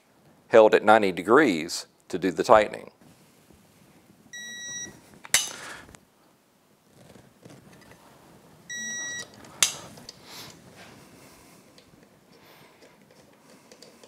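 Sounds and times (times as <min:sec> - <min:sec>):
torque wrench beeping: 0:08.7 - 0:09.8.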